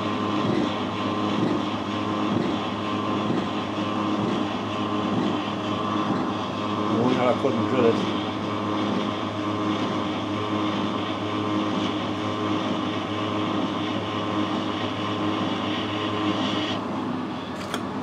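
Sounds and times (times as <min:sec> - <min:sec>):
lathe machine hum: 0:00.0 - 0:18.0.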